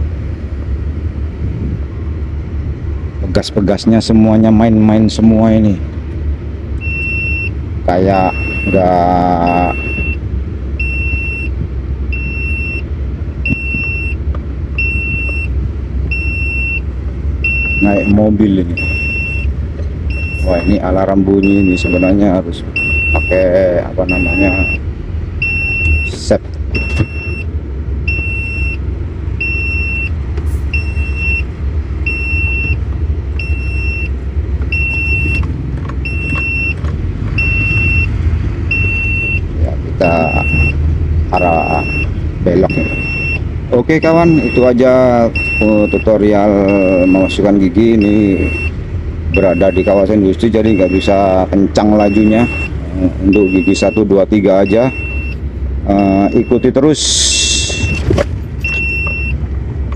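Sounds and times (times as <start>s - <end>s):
truck engine running: 0.0s - 59.9s
high warning beeps: 6.8s - 10.2s, 10.8s - 14.2s, 14.8s - 19.5s, 20.1s - 24.8s, 25.4s - 27.5s, 28.1s - 28.8s, 29.4s - 32.8s, 33.4s - 36.8s, 37.4s - 38.1s, 38.7s - 58.0s, 58.6s - 59.4s.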